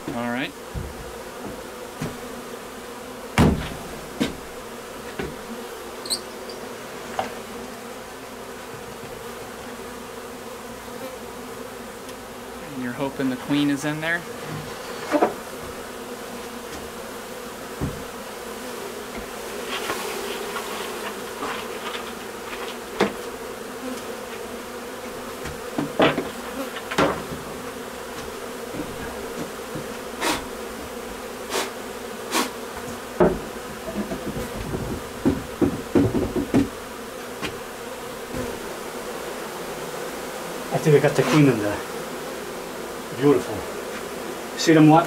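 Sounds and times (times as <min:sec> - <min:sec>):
bees buzzing: 0:00.0 - 0:45.0
sharp knocks and taps: 0:17.8 - 0:18.1, 0:32.8 - 0:36.7.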